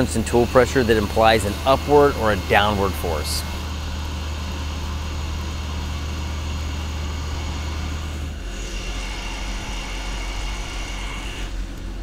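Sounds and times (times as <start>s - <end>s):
lathe low hum: 0.0s - 12.0s
steady high whine: 0.0s - 12.0s.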